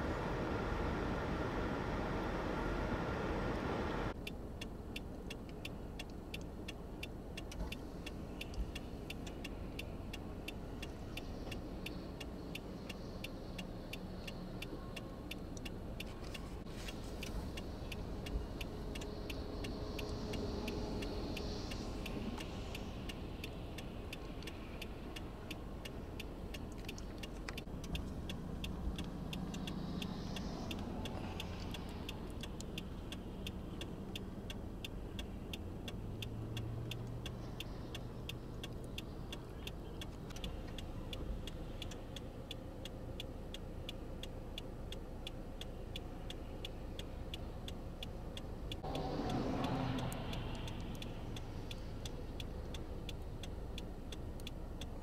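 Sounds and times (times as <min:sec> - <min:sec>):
engine running hum: 0:00.0 - 0:55.0
indicator flasher ticking: 0:17.1 - 0:55.0.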